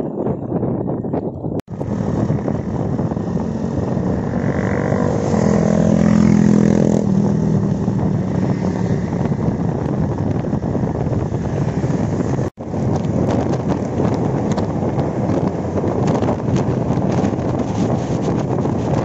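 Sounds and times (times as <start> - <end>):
wind and road noise: 0.0 - 19.0
motorcycle engines passing: 1.7 - 12.5.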